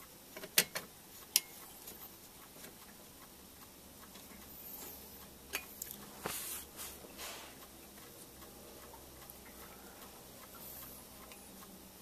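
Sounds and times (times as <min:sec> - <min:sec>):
faint steady ticking: 0:00.0 - 0:12.0
short rustle: 0:06.2 - 0:07.6.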